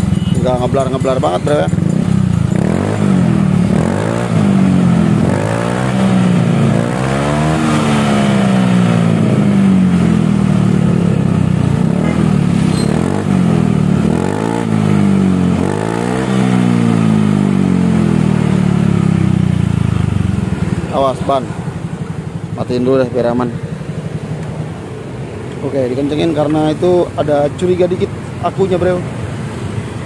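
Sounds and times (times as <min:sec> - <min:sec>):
scooter engine revving: 0:00.0 - 0:30.0.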